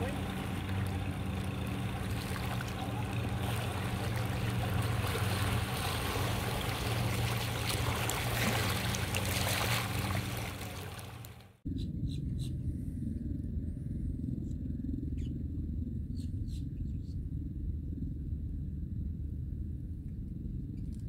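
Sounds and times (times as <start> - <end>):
outboard motor running: 0.0 - 11.6
wake splashing on rocks: 2.0 - 11.4.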